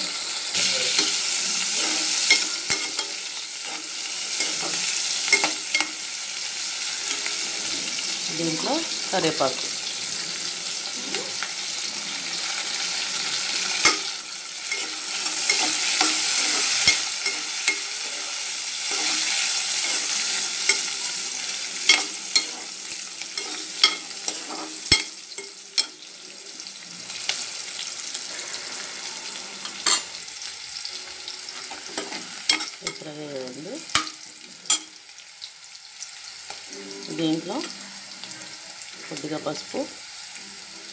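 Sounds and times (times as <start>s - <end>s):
vegetables sizzling in hot oil: 0.0s - 40.9s
metal spatula scraping pan: 0.6s - 6.2s, 13.2s - 26.0s.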